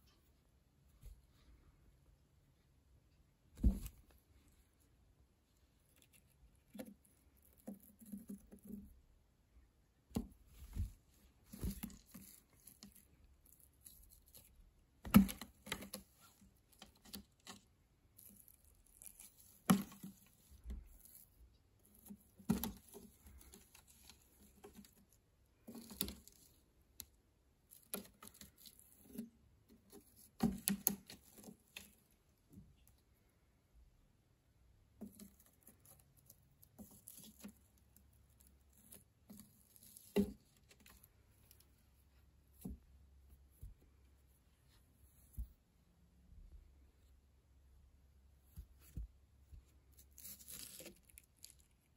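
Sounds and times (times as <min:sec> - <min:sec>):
cat scuffling and scratching: 0:10.2 - 0:26.8.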